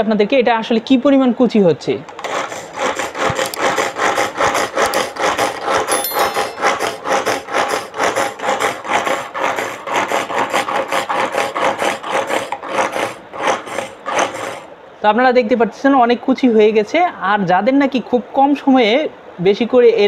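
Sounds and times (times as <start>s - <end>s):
pull-cord onion chopper spinning: 2.2s - 14.6s.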